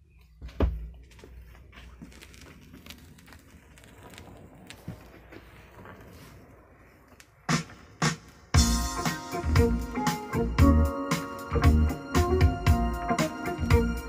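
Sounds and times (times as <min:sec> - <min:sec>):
vinyl surface crackle: 0:00.9 - 0:09.4
vinyl record pops: 0:01.9 - 0:10.2.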